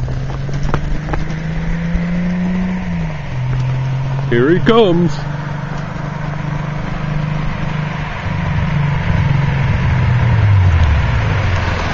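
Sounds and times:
car engine approaching: 0.0s - 11.9s.

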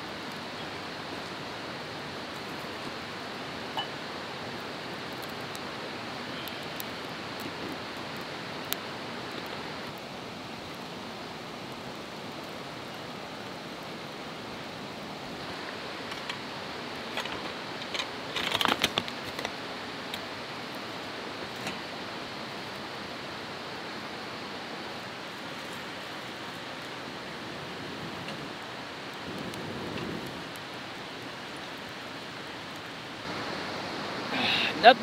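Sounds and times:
metal coffee pot clattering on stones: 3.8s - 4.0s
steady rushing noise: 32.4s - 35.0s.

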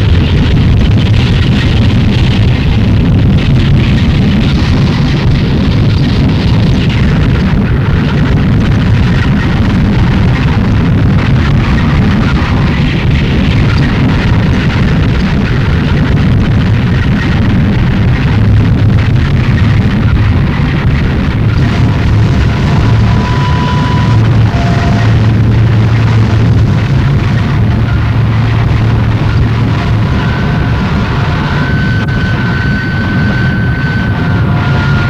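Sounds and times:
harsh distorted noise music: 0.0s - 35.0s.

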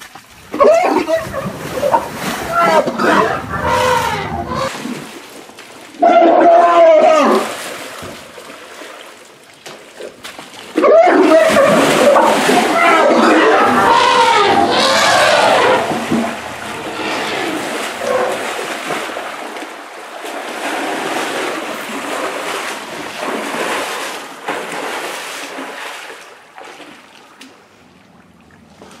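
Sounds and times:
wavering voice-like sounds: 0.6s - 4.8s, 10.8s - 18.6s
elephant splashing in mud: 7.3s - 27.0s.

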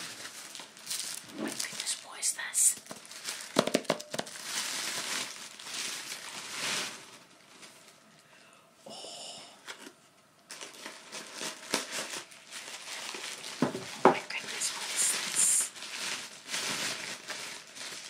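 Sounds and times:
tissue paper crinkling: 0.0s - 8.0s, 10.5s - 18.0s.

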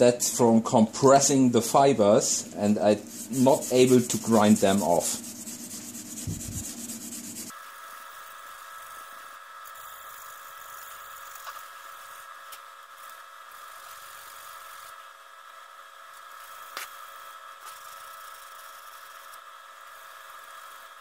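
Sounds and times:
cloth rubbing on wood: 3.0s - 7.5s.

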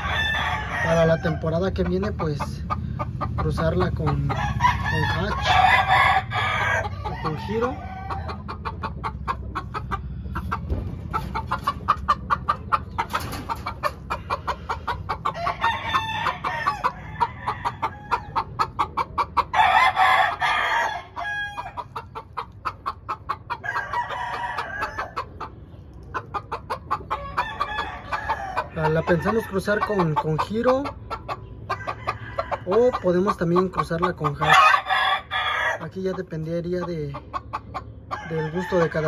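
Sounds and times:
rooster crowing: 0.0s - 1.5s, 4.3s - 8.5s, 15.3s - 18.4s, 19.5s - 21.8s, 23.6s - 25.3s, 27.2s - 29.6s, 31.7s - 32.9s, 34.4s - 35.9s, 38.1s - 39.0s
chickens clucking: 0.0s - 39.0s.

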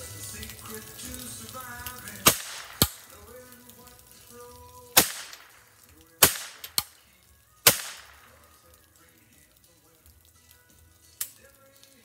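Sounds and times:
rifle shots: 2.2s - 3.1s, 5.0s - 7.0s, 7.6s - 8.4s.

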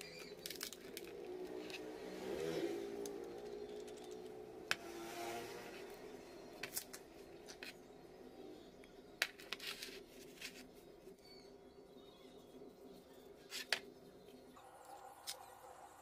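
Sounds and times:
engine hum: 0.0s - 9.2s.

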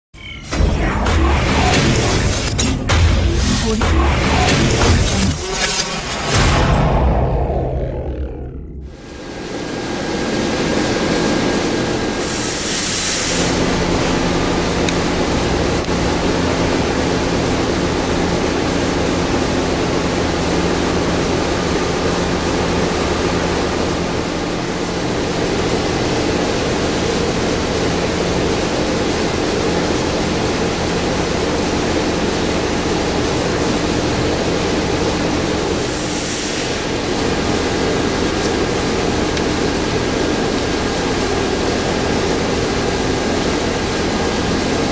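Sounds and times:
rushing hum of machinery: 0.2s - 44.9s
brief high hiss: 12.2s - 13.6s.

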